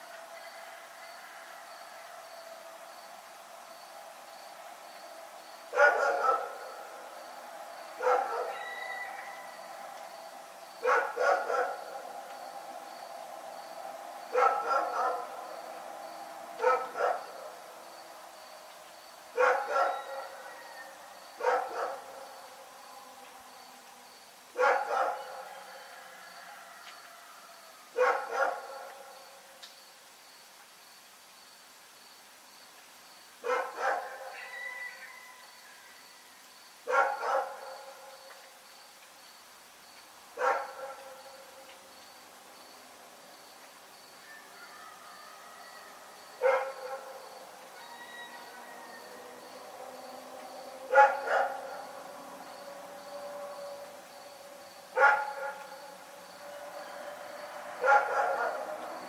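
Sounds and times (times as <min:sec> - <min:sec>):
dog barking: 0:05.7 - 0:06.6, 0:08.0 - 0:08.6, 0:10.8 - 0:11.9, 0:14.3 - 0:15.3, 0:16.6 - 0:17.3, 0:19.4 - 0:20.4, 0:21.4 - 0:22.2, 0:24.6 - 0:25.4, 0:28.0 - 0:29.0, 0:33.4 - 0:34.4, 0:36.9 - 0:38.0, 0:40.4 - 0:41.2, 0:46.4 - 0:47.2, 0:50.9 - 0:51.8, 0:55.0 - 0:55.7, 0:57.8 - 0:58.8.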